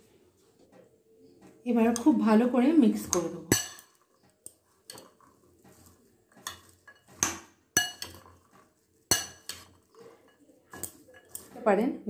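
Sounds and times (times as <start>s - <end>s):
spoon stirring salad: 1.2s - 11.8s
spoon clinking against glass: 6.4s - 8.4s.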